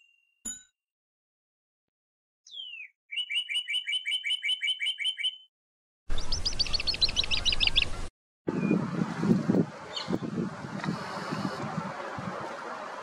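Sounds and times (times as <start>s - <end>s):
bird chirping: 2.5s - 5.5s, 6.1s - 8.8s, 9.9s - 10.3s.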